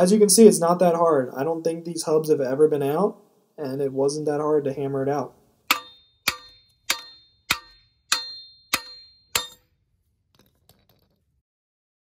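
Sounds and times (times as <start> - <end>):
hammer striking metal hub: 5.7 - 9.8.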